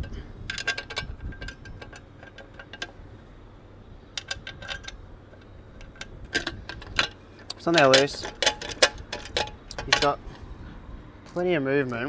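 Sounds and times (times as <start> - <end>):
small metal parts clinking: 0.0 - 3.1, 4.0 - 10.2.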